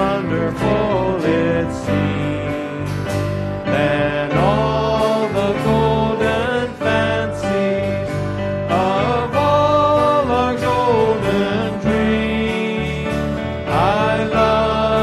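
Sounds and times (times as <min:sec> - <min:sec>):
acoustic guitars strumming: 0:00.0 - 0:15.0
person singing: 0:00.0 - 0:15.0.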